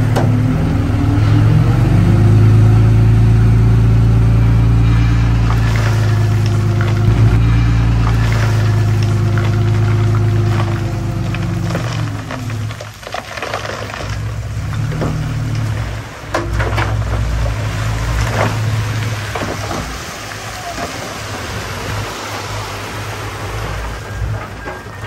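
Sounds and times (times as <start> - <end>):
bulldozer diesel engine rumbling: 0.0 - 25.0
machine knocks and clanks: 5.5 - 10.8.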